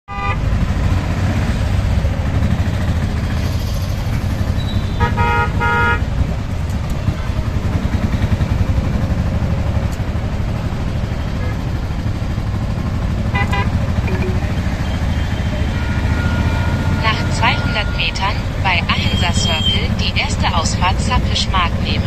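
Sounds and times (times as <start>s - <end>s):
vehicle horn toots: 0.1s - 0.5s, 4.7s - 6.1s, 13.3s - 20.1s.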